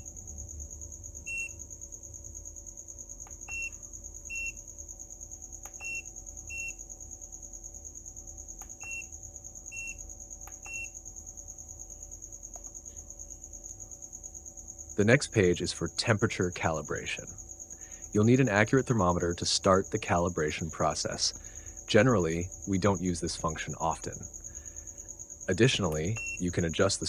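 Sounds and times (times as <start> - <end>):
short high beeps: 26.2 - 26.4.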